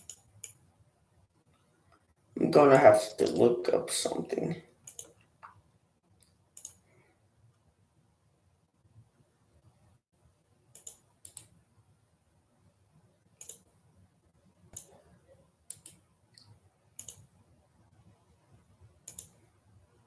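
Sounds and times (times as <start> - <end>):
computer mouse clicking: 0.0 - 0.6, 4.8 - 5.6, 6.2 - 6.9, 10.7 - 11.6, 13.4 - 13.7, 14.7 - 15.0, 15.7 - 17.3, 19.0 - 19.4.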